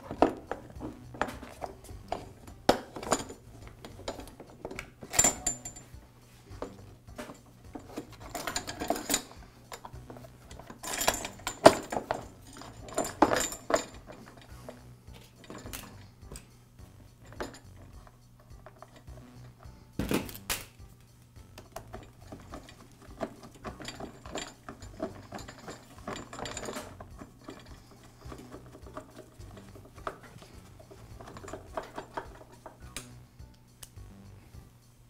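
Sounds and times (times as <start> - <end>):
plastic clattering on metal frame: 6.6 - 14.5, 21.6 - 32.8.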